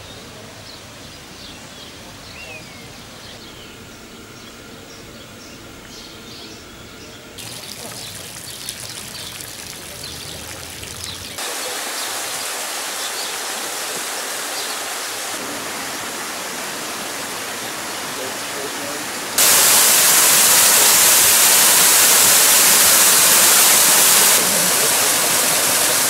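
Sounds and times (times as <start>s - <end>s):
water rushing over rocks: 7.4s - 26.0s.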